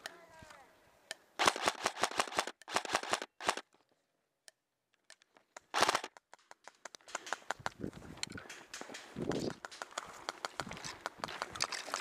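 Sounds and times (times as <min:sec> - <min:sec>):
airsoft rifle firing bursts: 0:01.4 - 0:03.6, 0:05.7 - 0:06.1.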